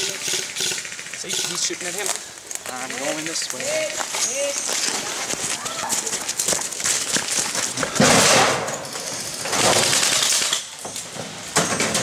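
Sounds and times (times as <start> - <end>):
airsoft guns firing in bursts: 0.0 - 2.0, 9.5 - 10.6.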